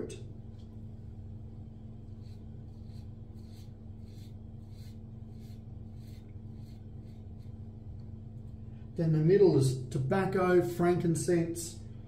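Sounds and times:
low hum: 0:00.0 - 0:12.0
razor scraping stubble: 0:02.1 - 0:08.1.

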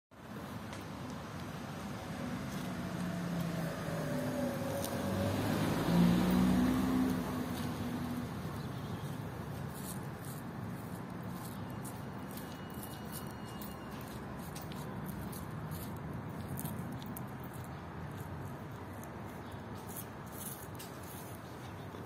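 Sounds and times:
motor vehicle passing: 0:01.0 - 0:12.8.

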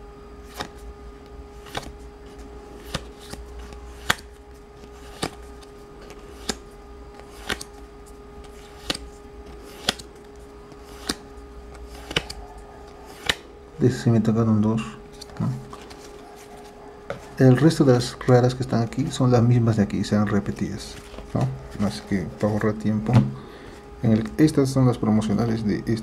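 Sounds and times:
steady hum: 0:00.0 - 0:26.0
cards snapping while flipped: 0:00.4 - 0:00.8, 0:01.6 - 0:07.8, 0:08.4 - 0:12.4, 0:13.1 - 0:13.5.

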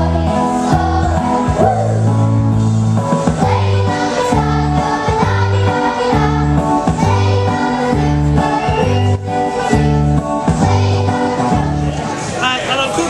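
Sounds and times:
backing track with bass line: 0:00.0 - 0:12.0.

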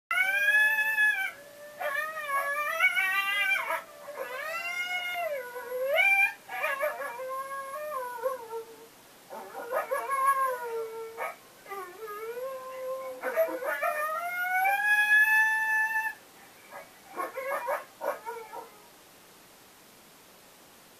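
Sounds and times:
coyote howls through speaker: 0:00.1 - 0:08.4.

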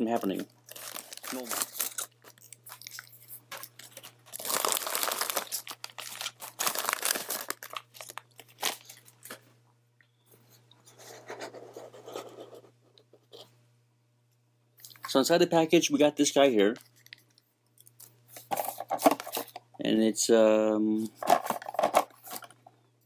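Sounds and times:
foil and plastic packaging crinkling: 0:00.0 - 0:09.4, 0:21.2 - 0:22.6.

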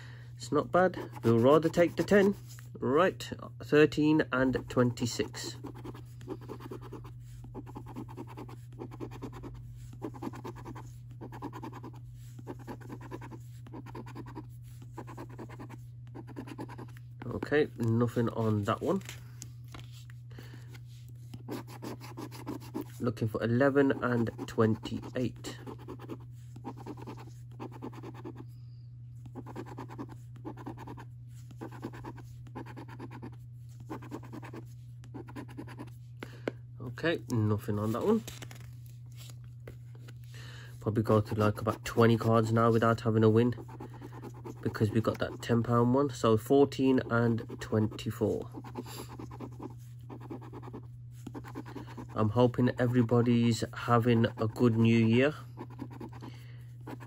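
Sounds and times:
low hum: 0:04.4 - 0:46.4
coin scratching a scratchcard: 0:05.0 - 0:17.0, 0:21.4 - 0:22.9, 0:23.7 - 0:28.4, 0:29.3 - 0:35.9, 0:41.1 - 0:45.5, 0:46.9 - 0:53.3, 0:54.0 - 0:56.3.

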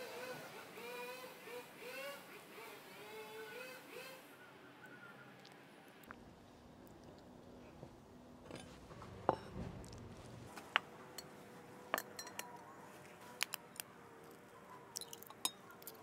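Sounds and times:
china clinking: 0:11.2 - 0:12.6.

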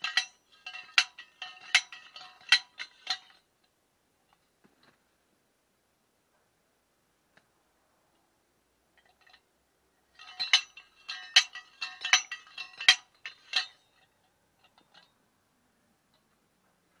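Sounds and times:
ringing metal-on-metal clanks: 0:00.0 - 0:03.4, 0:10.1 - 0:15.2.

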